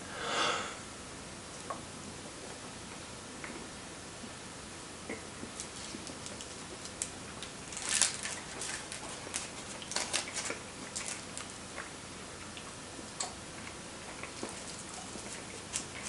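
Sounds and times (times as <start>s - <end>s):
candy wrapper crinkling: 5.6s - 11.5s.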